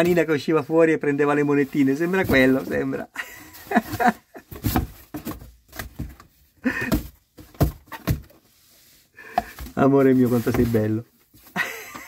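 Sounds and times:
rustling scrapes on cardboard: 1.4s - 5.8s, 8.3s - 11.6s
cardboard box thumps: 2.1s - 2.8s, 3.7s - 8.4s.

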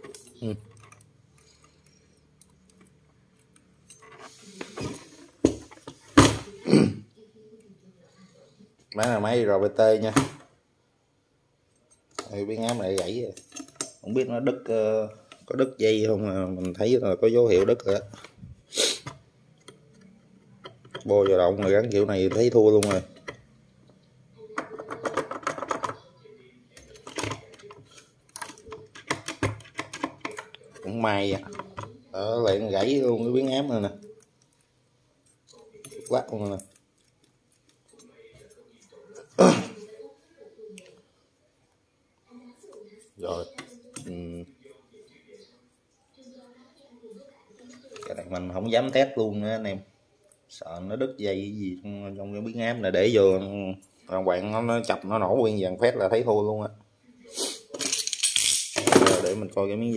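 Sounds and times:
plastic case rustling and scraping: 4.0s - 6.4s.

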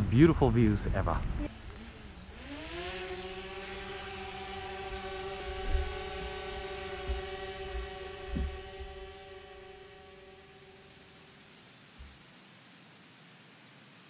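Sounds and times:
drone propellers buzzing: 1.3s - 12.2s
low thumps: 4.0s - 9.2s.

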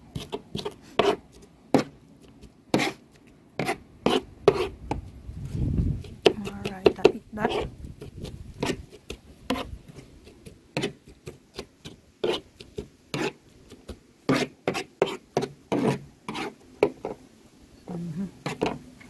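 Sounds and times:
knife chopping vegetables: 0.1s - 1.2s, 1.8s - 3.0s, 5.9s - 17.1s
knife scraping vegetables together: 0.1s - 17.2s, 18.4s - 18.8s.

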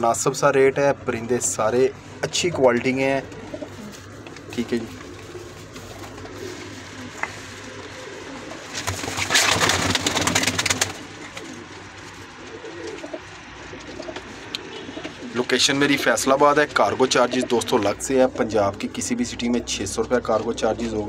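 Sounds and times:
pigeons cooing: 1.9s - 19.6s
rustling wing flurry: 3.4s - 14.6s.

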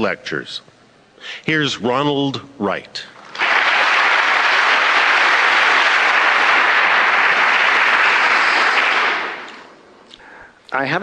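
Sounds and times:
audience applauding: 3.2s - 9.8s.

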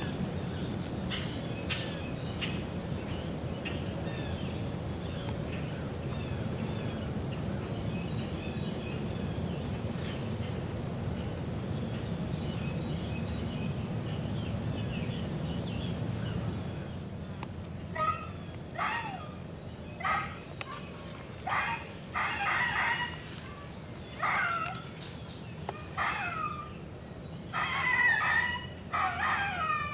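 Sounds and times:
high-pitched insect drone: 0.0s - 29.9s
low steady rumble: 0.0s - 29.9s
bird chirps: 17.7s - 29.9s.

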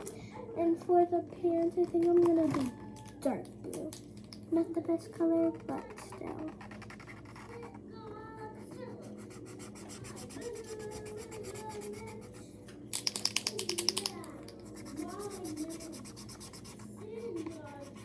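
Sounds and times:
marker scratching on paper: 5.5s - 7.8s, 8.6s - 12.5s, 14.6s - 18.0s
marker ball rattling: 12.9s - 14.6s.

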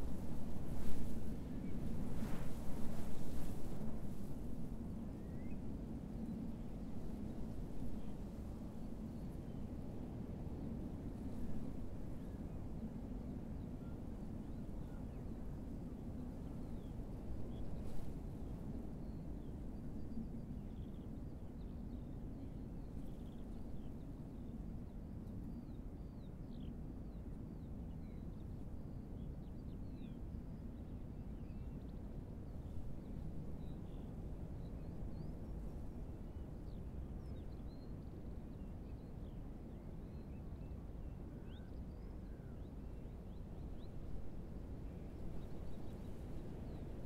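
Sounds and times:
faint birdsong: 25.4s - 47.0s.

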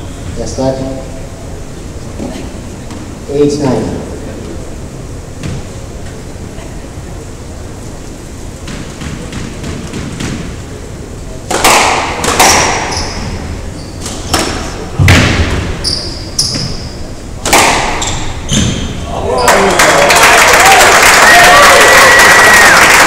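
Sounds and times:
squash ball cracking off rackets: 11.5s - 12.9s, 17.4s - 18.3s
shoes squeaking on wooden floor: 12.4s - 14.3s, 15.7s - 17.0s, 18.0s - 19.1s.

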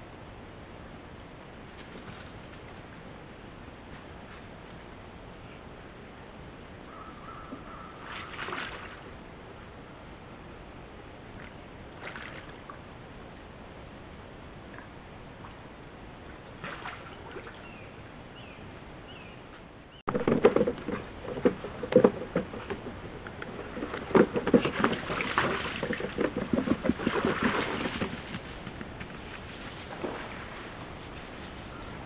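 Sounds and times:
faint bird chirps: 6.9s - 8.4s, 17.6s - 19.5s
otters moving on wooden boards: 20.1s - 30.2s
creek flowing: 20.1s - 32.0s.

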